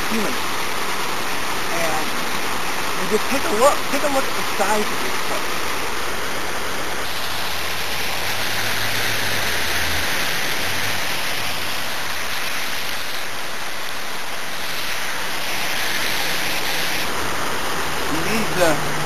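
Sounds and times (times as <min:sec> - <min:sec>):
fountain water rushing into pool: 0:00.0 - 0:19.0.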